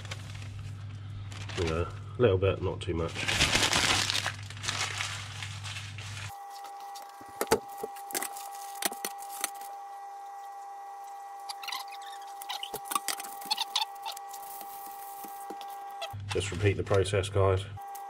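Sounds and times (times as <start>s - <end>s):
newspaper rustling: 0.0s - 2.0s, 3.1s - 9.6s.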